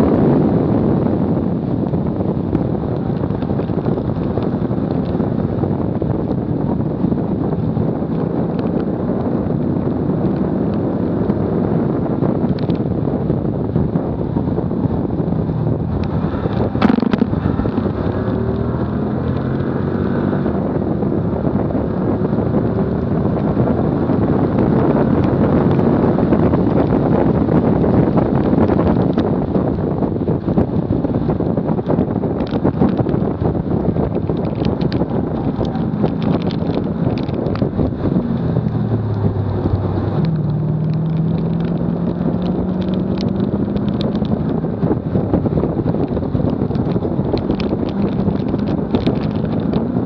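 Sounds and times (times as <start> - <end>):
faint car engine: 0.0 - 50.0
road and tyre roar: 0.0 - 50.0
wind rushing over microphone: 0.0 - 50.0.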